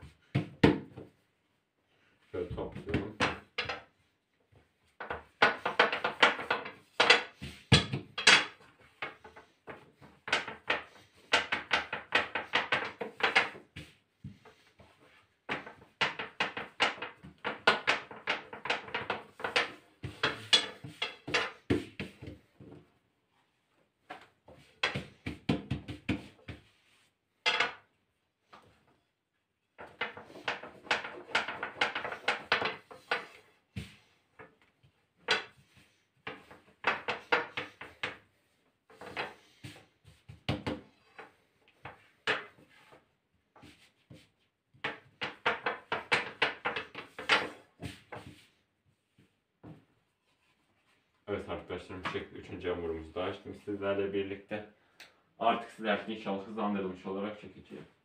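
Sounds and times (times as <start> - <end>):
rolling pin clattering on countertop: 2.7 - 3.9, 4.9 - 22.8, 24.0 - 28.8, 29.7 - 43.0, 43.6 - 48.5.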